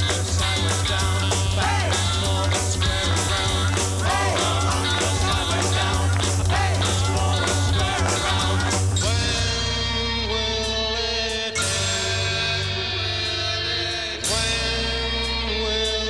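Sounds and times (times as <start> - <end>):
steady drum beat: 0.0 - 9.5
rock song with singing: 0.0 - 16.0.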